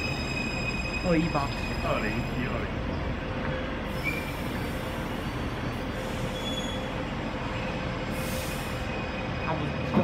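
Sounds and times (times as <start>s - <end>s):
electric train rumbling: 0.0s - 10.0s
high brake squeaks: 6.0s - 7.0s.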